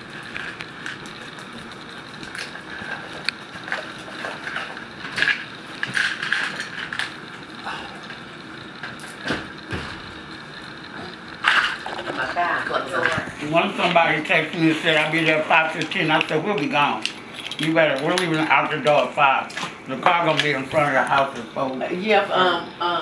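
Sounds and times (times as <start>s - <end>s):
small objects clicking and rustling: 0.2s - 7.2s, 14.6s - 21.4s.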